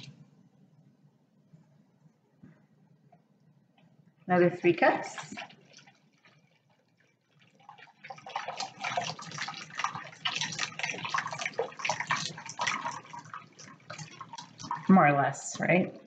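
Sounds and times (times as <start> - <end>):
broth pouring into glass bowl: 5.0 - 15.2.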